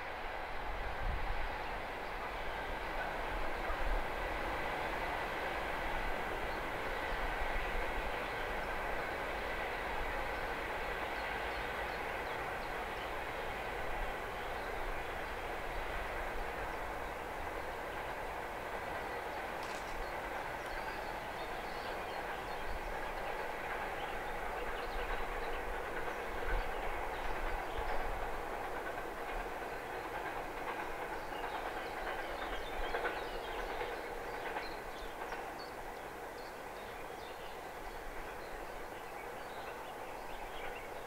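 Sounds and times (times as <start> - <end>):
freight train wheels rumbling: 0.0 - 41.0
faint rail clicks: 17.9 - 38.7.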